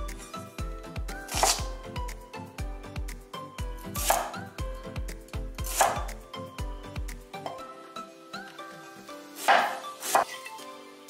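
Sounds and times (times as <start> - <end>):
background music with beat: 0.0 - 11.0
knife cutting on wooden board: 1.3 - 1.7, 4.0 - 4.4, 5.6 - 6.1, 9.4 - 10.4.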